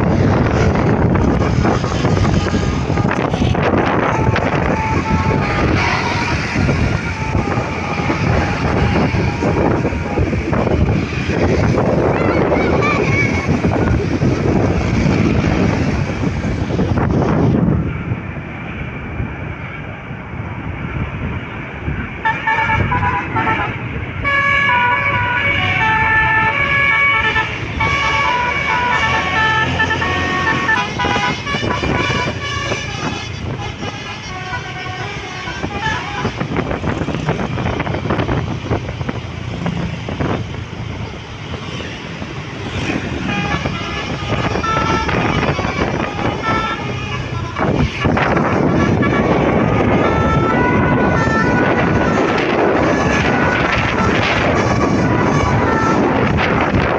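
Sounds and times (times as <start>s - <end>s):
traffic noise: 0.0s - 56.9s
wind rumble: 0.0s - 56.9s
musical air horn tune: 1.3s - 10.0s, 22.2s - 36.6s, 43.2s - 56.4s.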